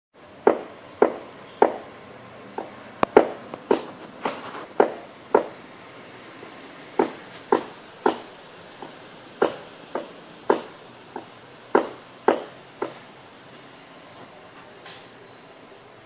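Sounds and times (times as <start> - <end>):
sharp ringing knocks: 0.5 - 1.9, 2.6 - 5.6, 7.0 - 13.2.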